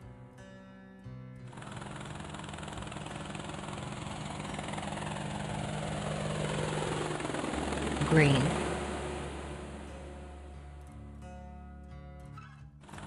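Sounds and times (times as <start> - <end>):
helicopter rotor and engine: 1.5 - 11.0.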